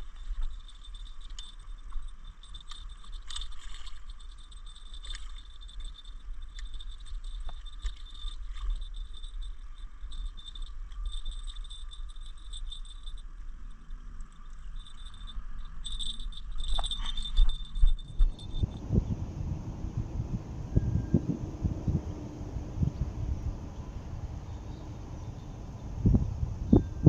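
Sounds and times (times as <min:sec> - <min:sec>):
wind rumbling on microphone: 0:17.3 - 0:27.0.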